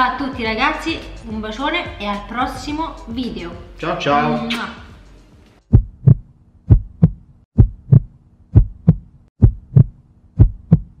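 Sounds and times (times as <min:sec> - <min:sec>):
heartbeat thumps: 0:05.7 - 0:11.0.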